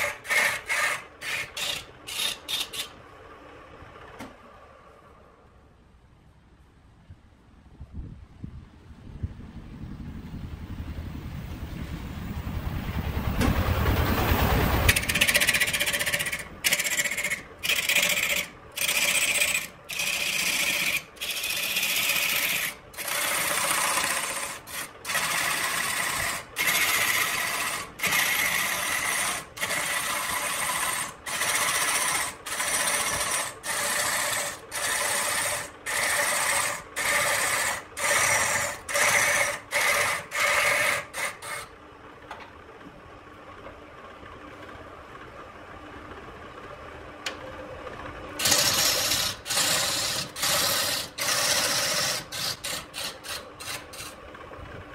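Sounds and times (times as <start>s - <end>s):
gouge rasping on lathe wood: 0.0s - 2.9s, 14.9s - 41.7s, 48.4s - 54.2s
lathe humming: 0.0s - 3.0s, 14.9s - 41.7s, 47.8s - 54.5s
low rumble: 7.8s - 15.1s.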